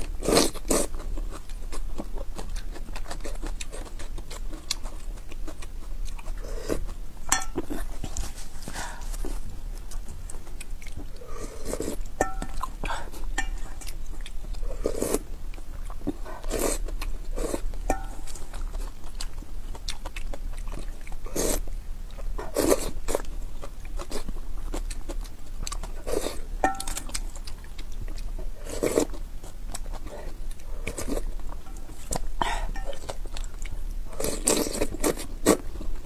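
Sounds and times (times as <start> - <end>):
chewing: 0.0 - 36.0
slurping noodles and broth: 11.2 - 12.1, 14.7 - 15.3, 16.2 - 16.8, 21.3 - 21.6, 22.4 - 23.0, 26.0 - 26.4, 28.6 - 29.1, 34.1 - 35.7.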